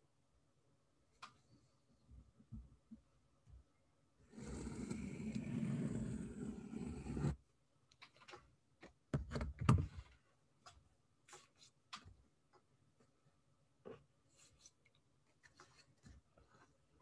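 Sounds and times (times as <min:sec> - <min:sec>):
pencil scraping on paper: 0:04.3 - 0:07.4.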